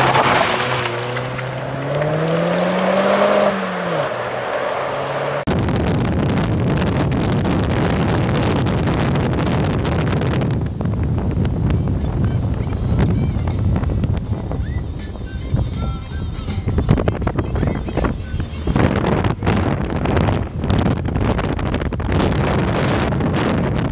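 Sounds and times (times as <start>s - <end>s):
car engine revving: 0.0s - 10.5s
road rumble: 0.0s - 23.9s
wind buffeting microphone: 5.5s - 23.9s.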